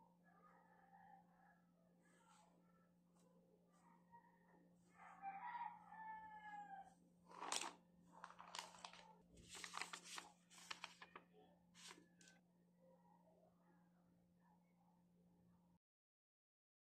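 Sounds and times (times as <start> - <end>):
rooster crowing: 5.0 - 7.0
plastic bags and paper rustling: 7.3 - 11.2, 11.8 - 12.4.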